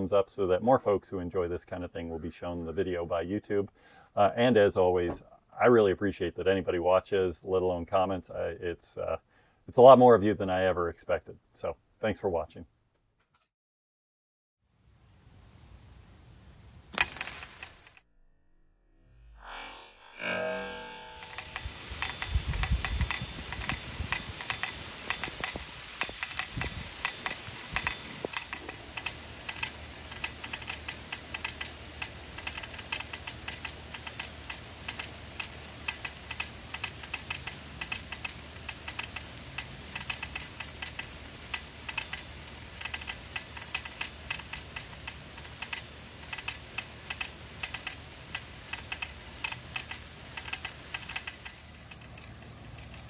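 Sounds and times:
sprinkler ball drive ticking: 21.2 - 53.0
water jets hissing: 21.2 - 53.0.

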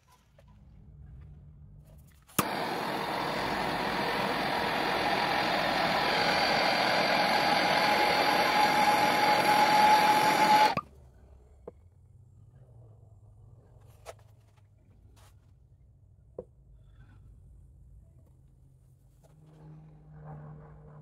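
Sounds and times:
gas torch flame hissing: 2.4 - 10.8.

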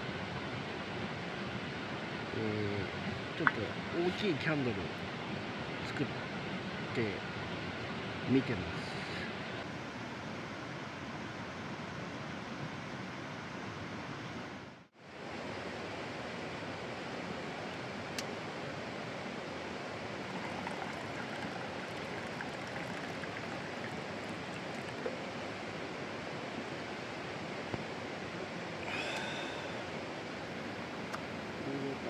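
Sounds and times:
mountain stream rushing: 15.0 - 32.0.

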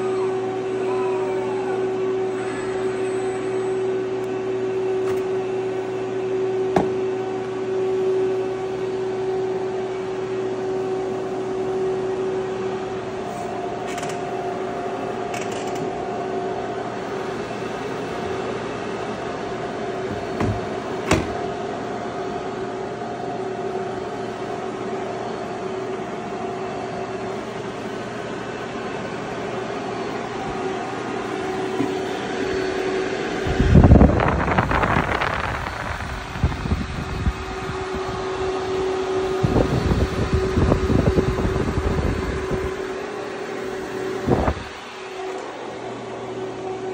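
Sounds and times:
cooling fans humming: 0.0 - 46.9
fan air rushing on microphone: 27.3 - 46.9.

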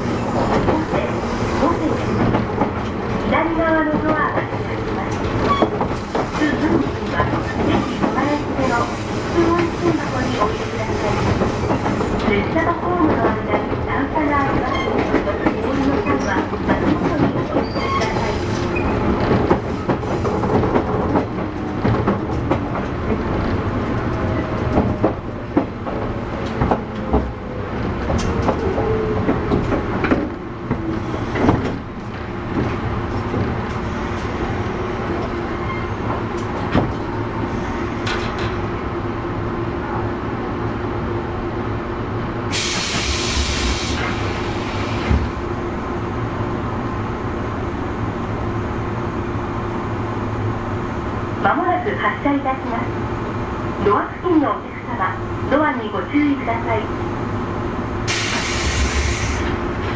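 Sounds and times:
train wheels clattering on rails: 0.0 - 38.7
air hiss: 42.5 - 45.1, 58.1 - 59.5.

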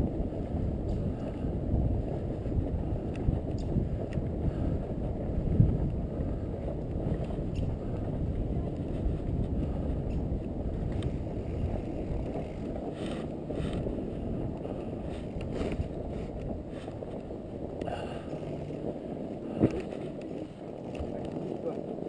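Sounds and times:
tyres rolling over snow: 0.0 - 22.0
wind on microphone: 0.0 - 22.0
short crackles: 6.2 - 22.0.

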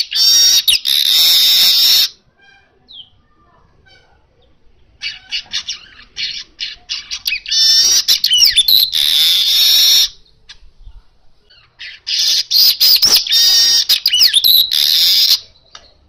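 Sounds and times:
bird squeaky gliding notes: 5.0 - 10.2.

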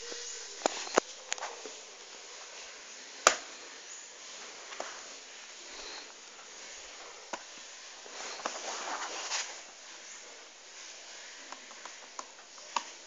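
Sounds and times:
fabric rustling: 4.1 - 11.4.

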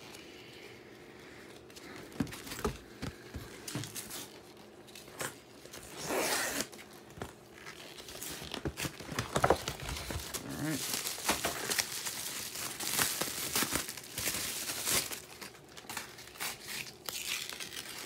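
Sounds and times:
packaging crinkling: 1.6 - 18.0
packaging rustling and clicking: 1.6 - 18.0
packaging tearing: 3.9 - 18.0.

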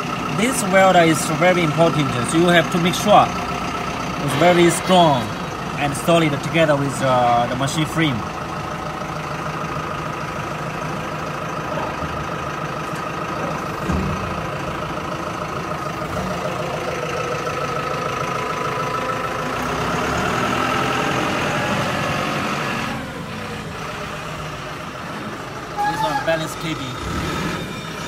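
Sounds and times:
truck engine idling: 0.0 - 28.0
held tone: 25.8 - 26.6.

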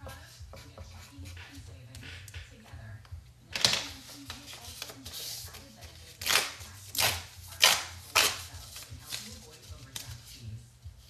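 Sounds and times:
paper tickets tearing: 3.6 - 10.4.

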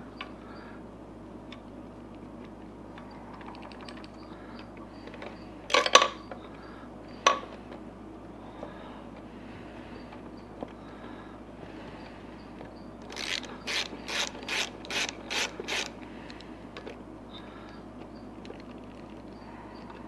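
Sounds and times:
hand wrench clicking: 13.0 - 16.4.

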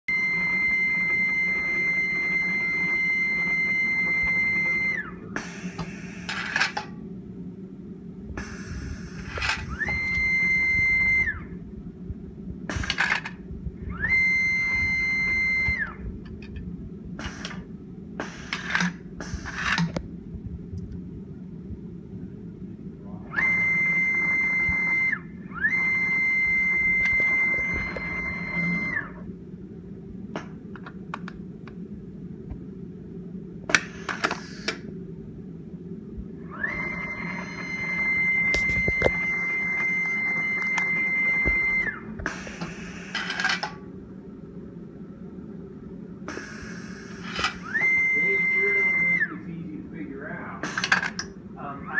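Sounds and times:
low steady hum: 0.1 - 51.9
stepper motor whine: 0.1 - 51.9
pneumatic actuator hisses: 5.4 - 6.8, 8.4 - 9.9, 17.2 - 19.9, 33.7 - 34.8, 42.2 - 43.7, 46.3 - 47.9, 50.6 - 51.0.

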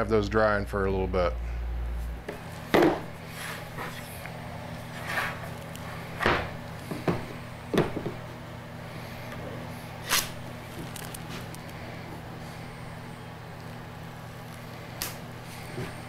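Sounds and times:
steady low hum: 0.0 - 16.0
objects knocking on workbench: 2.3 - 3.1, 6.2 - 8.2.

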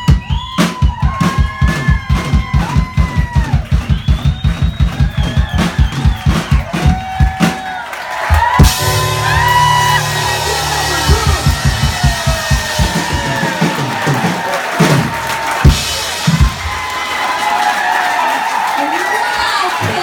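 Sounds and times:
drum kit beat: 0.0 - 17.6
piano: 8.4 - 17.7
pitch-bending melody line: 8.6 - 13.4.

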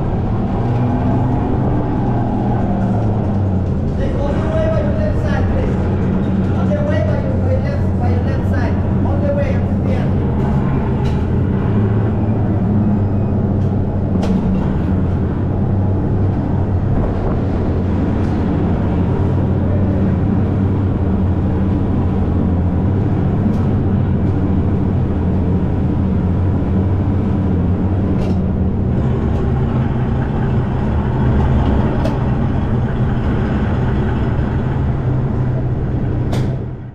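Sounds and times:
go-kart motor and tyres rumbling: 0.0 - 36.9.

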